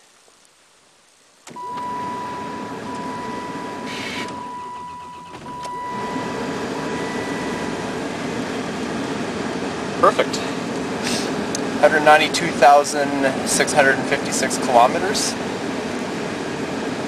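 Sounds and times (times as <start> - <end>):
car engine starting and running: 1.4 - 17.0
steady high-pitched tone: 1.6 - 9.4.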